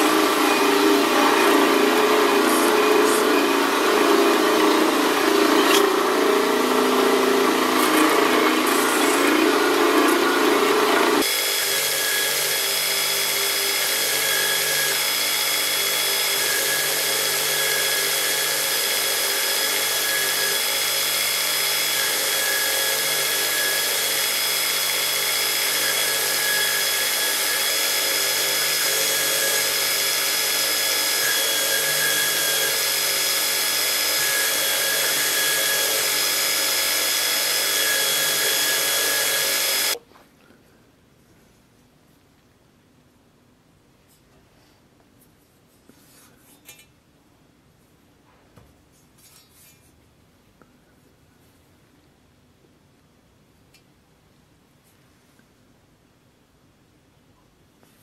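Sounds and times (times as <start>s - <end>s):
belt grinder grinding metal: 0.0s - 40.0s.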